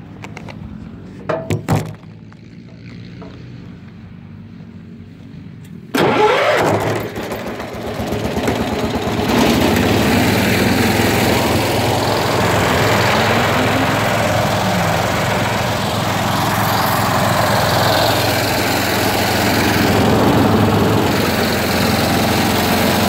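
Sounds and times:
lawn tractor engine running: 5.7s - 23.0s.

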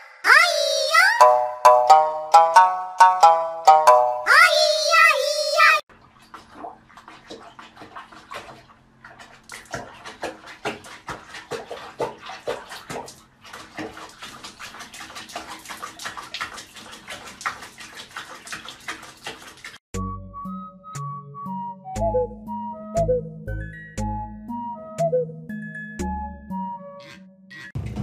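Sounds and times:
music: 1.2s - 4.3s, 19.9s - 28.0s
small clicks and drips: 5.9s - 19.8s
water sloshing and splashing: 5.9s - 19.9s.

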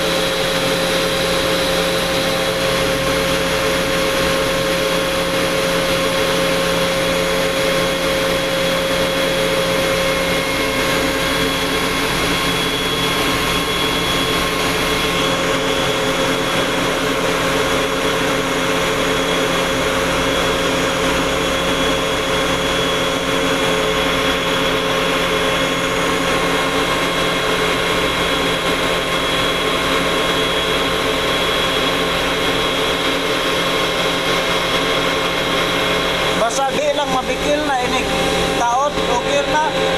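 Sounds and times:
air compressor drone: 0.0s - 39.9s.

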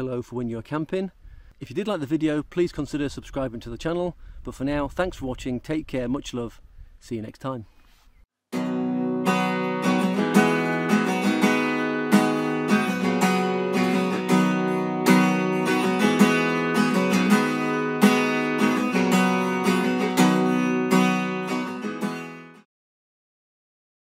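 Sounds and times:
acoustic guitar strumming: 8.5s - 22.7s.

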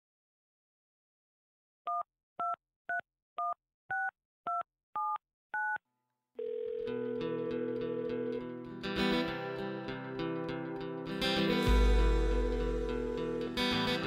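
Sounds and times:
music: 6.9s - 14.0s.

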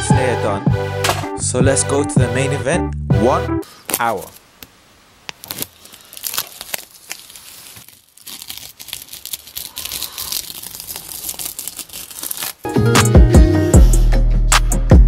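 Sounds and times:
loud music: 0.0s - 3.6s, 12.7s - 15.0s
masking tape peeling and crackling: 5.2s - 12.7s.

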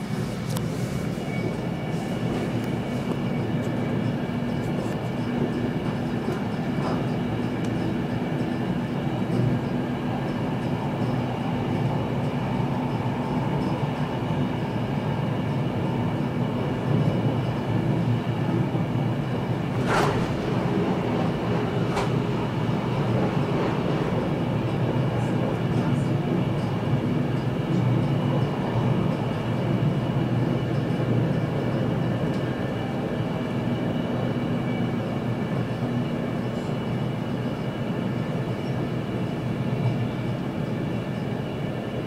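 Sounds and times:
train rumble: 0.0s - 42.0s.

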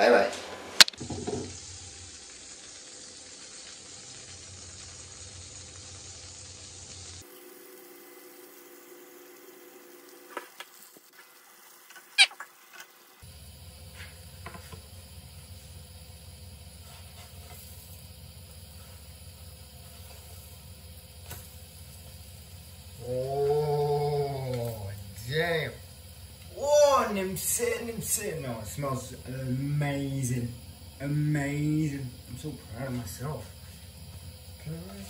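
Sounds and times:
batter sizzling in a frying pan: 0.0s - 35.0s.

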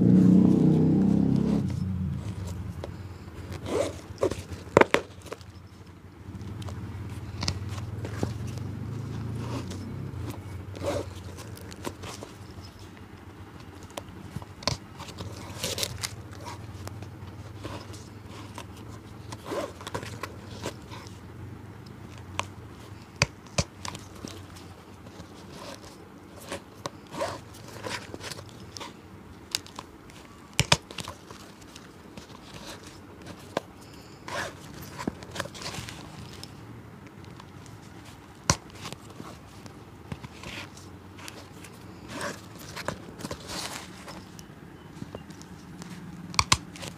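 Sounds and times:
low steady hum: 0.0s - 46.9s
clicks and taps on a shoe: 22.2s - 25.8s, 34.7s - 46.9s.

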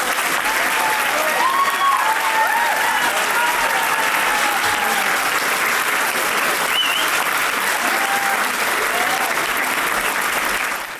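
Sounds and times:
audience applauding: 0.0s - 10.9s
cheers and whoops: 0.3s - 5.4s, 6.7s - 9.9s.

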